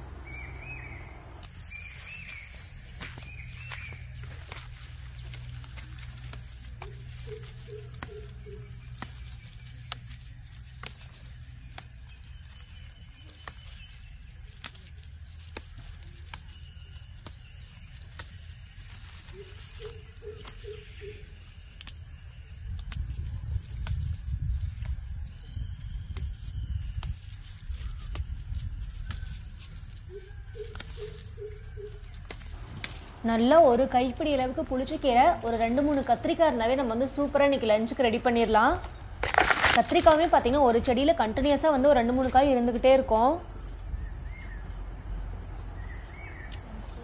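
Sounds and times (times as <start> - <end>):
bird calling low notes: 0.0 - 4.5, 6.8 - 9.9
insects buzzing: 0.0 - 47.0
leaves snapping as picked: 1.4 - 44.0, 46.4 - 47.0
wind rumbling on microphone: 22.3 - 30.7.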